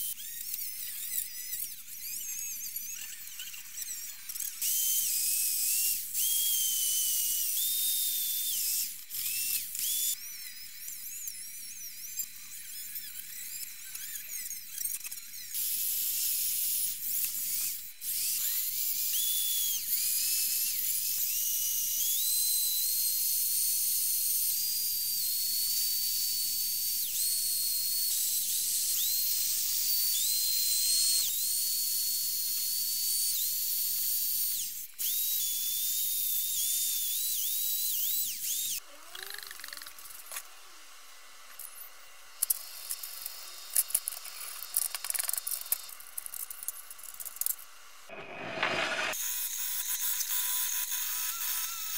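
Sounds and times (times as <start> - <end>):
wire brush power tool whining: 0.0 - 23.2, 41.5 - 51.9.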